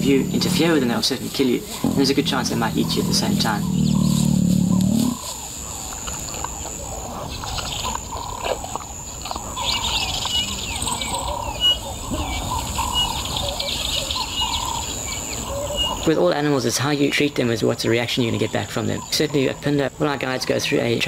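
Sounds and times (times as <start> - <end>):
high insect buzz: 0.0 - 5.5
birds chirping: 0.0 - 21.0
low rumble: 1.8 - 5.2.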